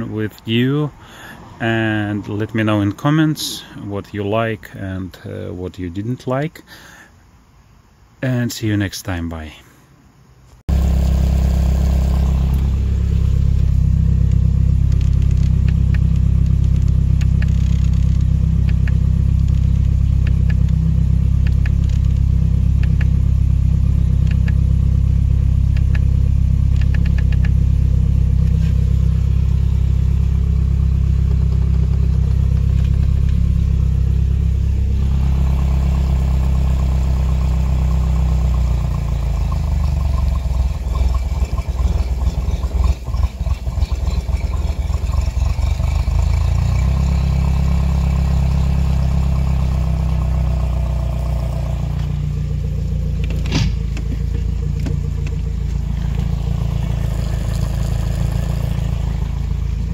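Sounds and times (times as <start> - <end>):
outboard engine running: 34.8 - 37.3, 38.6 - 48.4, 52.7 - 59.9.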